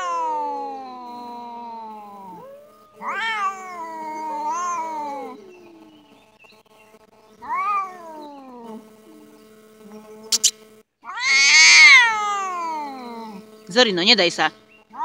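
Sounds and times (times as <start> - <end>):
cats yowling: 0.0 - 6.2, 7.4 - 9.3, 11.0 - 13.5
short sharp clicks: 10.3 - 10.6.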